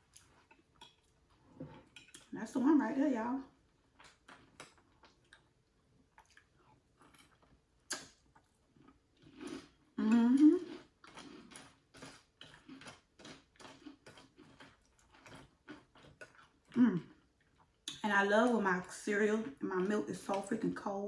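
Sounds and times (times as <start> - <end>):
crunchy cereal chewing: 6.1 - 9.9, 10.6 - 17.9
person humming mm: 10.0 - 10.7, 16.8 - 17.1.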